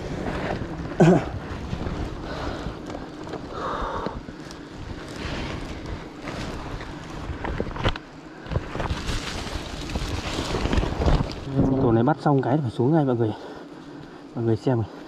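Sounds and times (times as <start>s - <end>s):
plastic sack rustling: 0.0s - 11.8s
microphone handling noise: 0.0s - 11.9s
wind rumbling on microphone: 0.0s - 12.1s.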